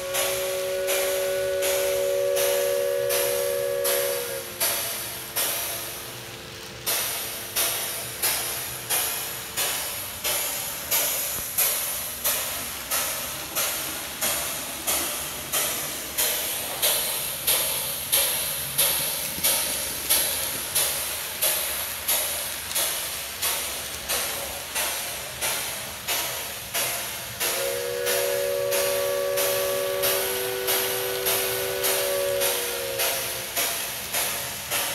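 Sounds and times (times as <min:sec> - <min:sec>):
two-note steam whistle: 0:00.0 - 0:06.1, 0:25.5 - 0:34.9
steam locomotive chuffing: 0:00.0 - 0:34.9.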